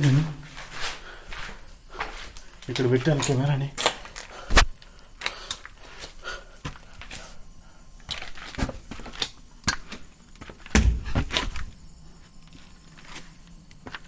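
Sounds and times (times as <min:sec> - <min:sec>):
sandal footsteps on concrete stairs: 0:00.0 - 0:04.1, 0:08.4 - 0:14.0.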